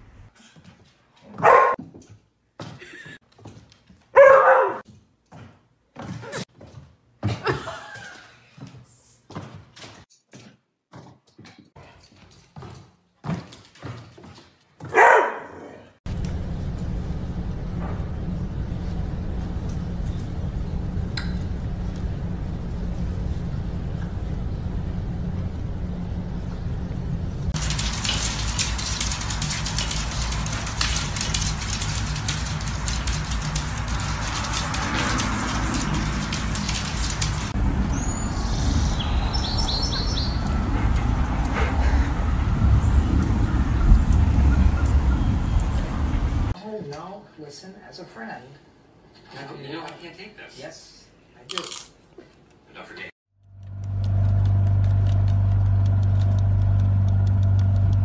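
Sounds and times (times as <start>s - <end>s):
dog barking: 1.3s - 1.8s, 4.2s - 4.8s, 14.8s - 15.9s
low hum with hiss: 16.1s - 28.6s
steady low rumble: 16.1s - 46.6s
small birds chirping: 37.8s - 40.6s.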